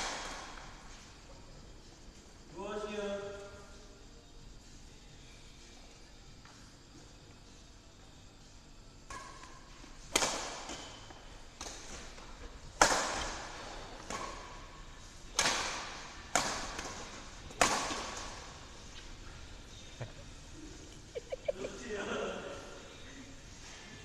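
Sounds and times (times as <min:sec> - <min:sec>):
badminton rackets hitting shuttlecock: 0:09.1 - 0:18.6.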